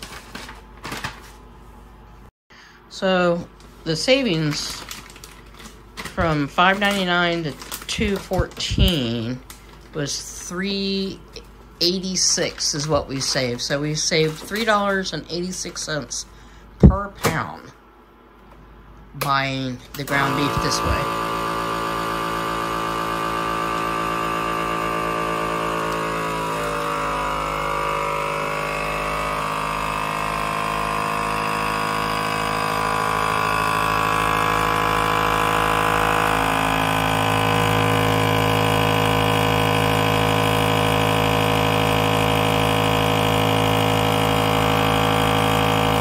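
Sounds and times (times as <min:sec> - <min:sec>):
vacuum sealer pump motor running: 0:04.1 - 0:11.2, 0:19.9 - 0:46.0.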